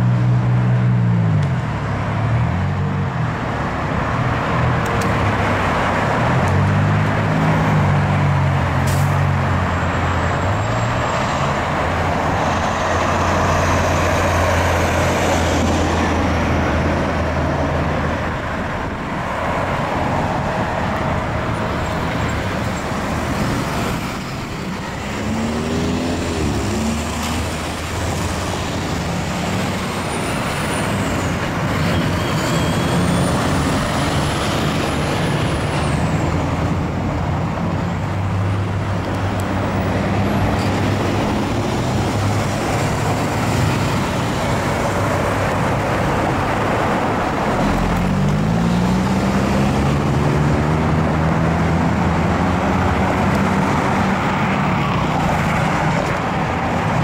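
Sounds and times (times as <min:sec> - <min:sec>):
vehicles driving past: 0:00.0 - 0:57.0
engine revving as it pulls away: 0:22.3 - 0:36.3, 0:38.5 - 0:56.2.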